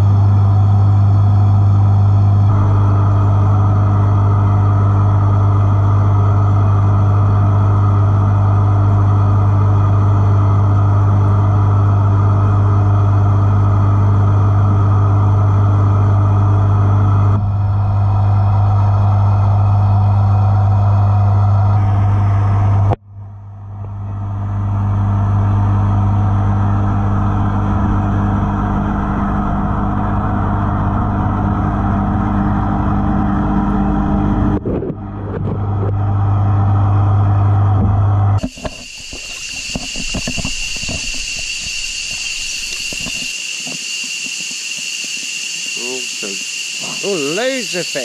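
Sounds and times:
aquarium water pump humming: 0.0s - 48.0s
high-pitched whine: 0.0s - 48.0s
shallow river flowing: 38.4s - 47.8s.

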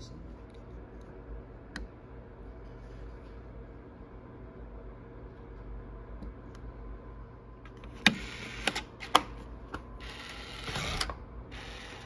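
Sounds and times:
lock motor whirring: 10.0s - 12.0s.

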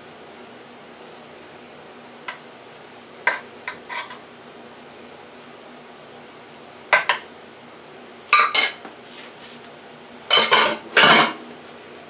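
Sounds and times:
metal spoon scraping a pan: 3.3s - 4.2s
dishes clattering: 8.4s - 8.8s, 10.3s - 11.4s.

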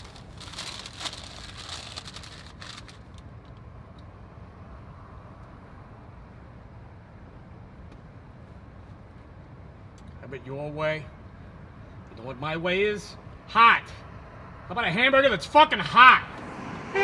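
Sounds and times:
paper wrapper crinkling: 0.0s - 3.2s
car engine and road rumble: 0.0s - 17.0s.

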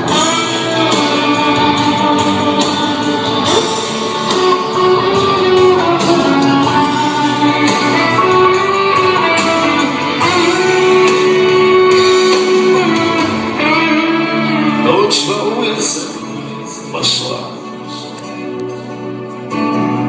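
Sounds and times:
instrumental pop music: 0.0s - 20.0s.

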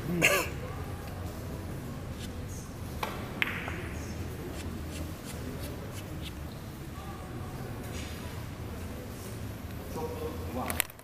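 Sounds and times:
low hall hum: 0.0s - 11.0s
billiard balls clicking: 3.0s - 6.4s.

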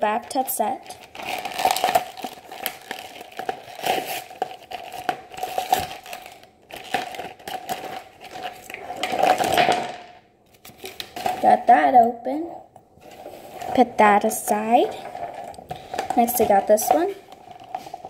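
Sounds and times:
packaging crinkling and tearing: 0.2s - 11.5s, 14.8s - 18.0s.

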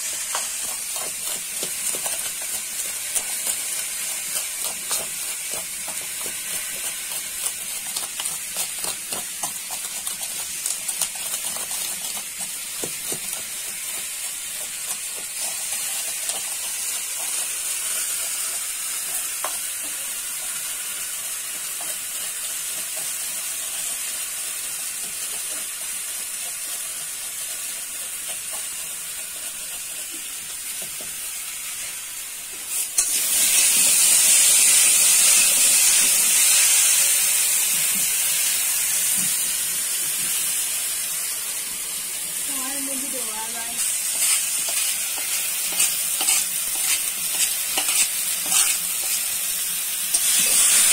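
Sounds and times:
food frying in oil: 0.0s - 50.9s
stone crushing in wooden bowl: 0.3s - 15.4s, 44.1s - 49.2s.

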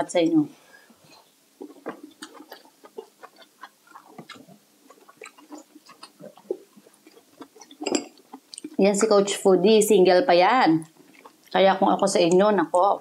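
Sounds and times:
chewing with wet mouth smacks: 1.2s - 9.1s, 10.8s - 11.6s.

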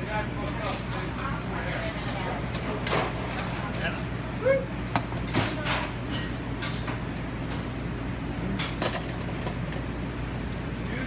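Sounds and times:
dishes clinking on a counter: 0.4s - 7.0s, 8.6s - 9.8s.

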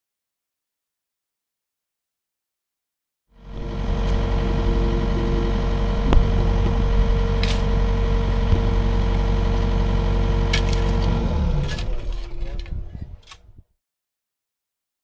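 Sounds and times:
excavator diesel engine idling: 3.4s - 12.7s.

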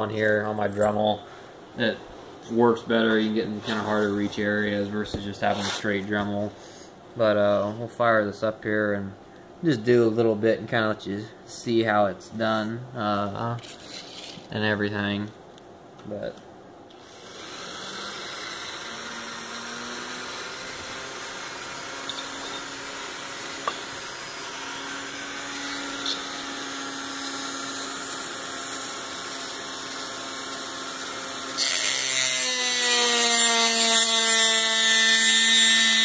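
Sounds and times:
rotary tool whining: 16.9s - 36.0s
grinding bit cutting metal: 17.0s - 36.0s.

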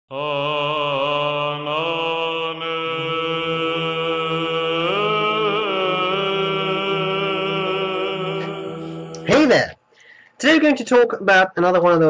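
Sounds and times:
voice chanting: 0.1s - 9.8s
low drone: 0.2s - 9.5s.

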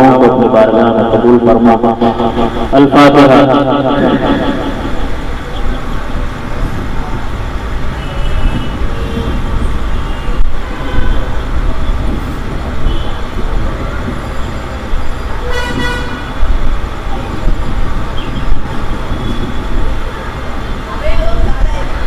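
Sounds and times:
street traffic noise: 0.0s - 22.0s
vehicle horns tooting: 4.0s - 6.1s, 7.9s - 12.0s, 12.8s - 13.4s, 15.4s - 16.4s.

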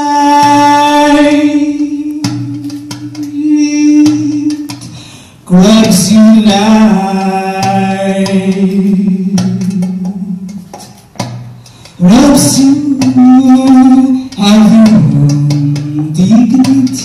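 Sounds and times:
woman singing into microphone: 0.0s - 5.0s.

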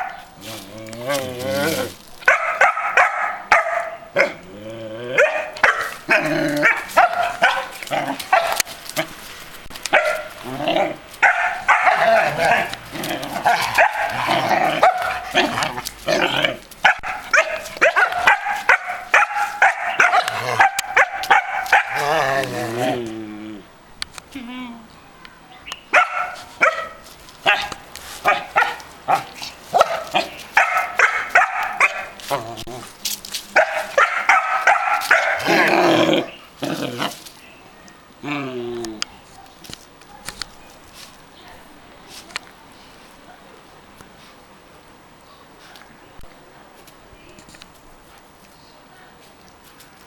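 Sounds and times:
dogs barking high: 0.0s - 0.4s, 2.2s - 4.5s, 5.1s - 9.2s, 9.9s - 22.3s, 25.9s - 32.4s, 33.6s - 37.1s
dog barking sharply: 33.6s - 35.4s.

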